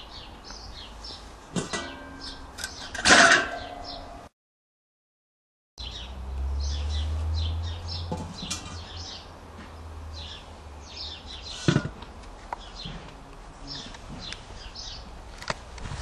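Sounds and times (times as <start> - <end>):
small birds chirping: 0.0 - 3.0, 3.6 - 4.2, 5.8 - 11.7, 12.5 - 13.0, 13.6 - 15.1.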